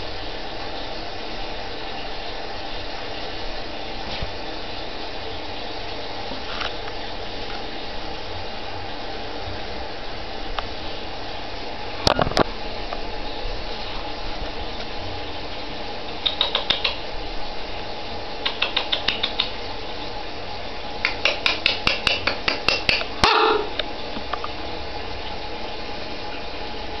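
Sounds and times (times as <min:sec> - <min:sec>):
rabbit claws clicking on tiles: 0:16.2 - 0:17.0, 0:18.4 - 0:19.6, 0:21.0 - 0:23.1.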